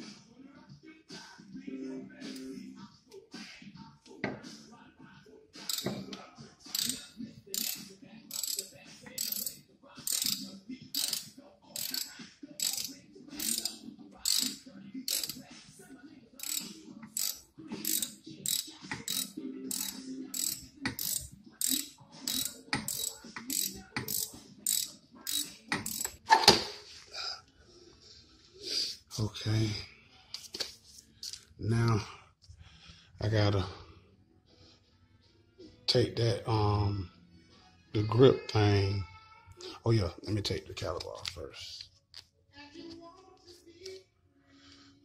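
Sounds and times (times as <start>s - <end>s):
ratchet wrench clicking: 5.7s - 6.0s, 6.7s - 15.5s, 16.4s - 26.2s.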